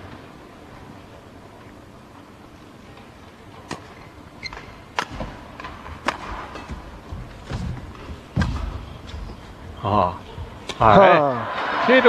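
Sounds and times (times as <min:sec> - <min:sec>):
racket striking shuttlecock: 0:03.7 - 0:07.1.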